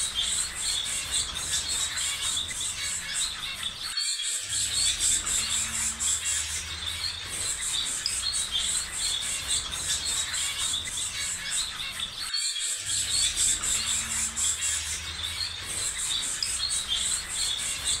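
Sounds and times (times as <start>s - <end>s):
small birds chirping: 0.0s - 18.0s
high buzz of insects: 12.6s - 18.0s.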